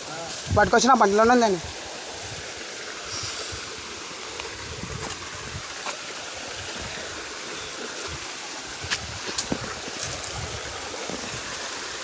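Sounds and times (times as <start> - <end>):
stream water over rocks: 0.0 - 12.0
shoes stepping on rock: 8.8 - 11.3.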